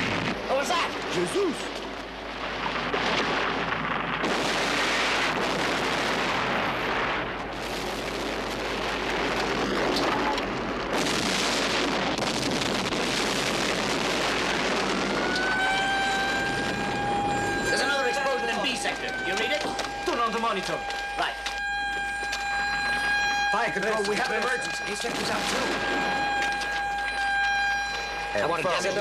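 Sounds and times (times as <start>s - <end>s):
explosions: 0.0s - 28.1s
rumble of blasts and fire: 0.0s - 29.0s
siren wailing: 13.5s - 29.0s.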